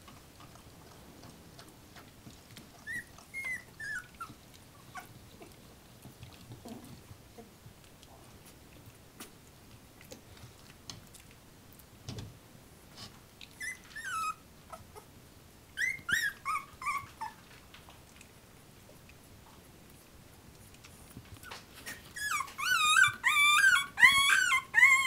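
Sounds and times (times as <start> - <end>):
puppy whining and yelping: 2.5 - 5.6, 13.5 - 15.1, 15.7 - 17.6, 21.4 - 25.0.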